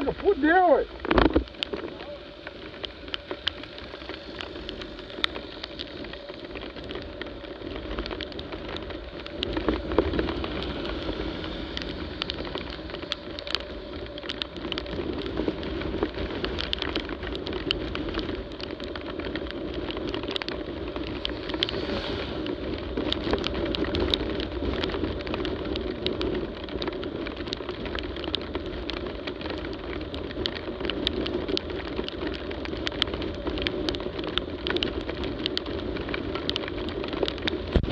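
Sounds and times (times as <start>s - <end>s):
motorcycle engine drone: 0.0s - 37.9s
raindrops ticking on camera: 0.0s - 37.9s
wet tyres on road: 0.0s - 37.9s
wind rushing: 20.6s - 24.6s.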